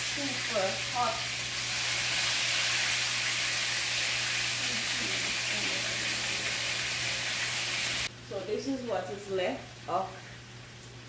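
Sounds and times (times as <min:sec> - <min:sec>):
chicken sizzling in oil: 0:00.0 - 0:08.1.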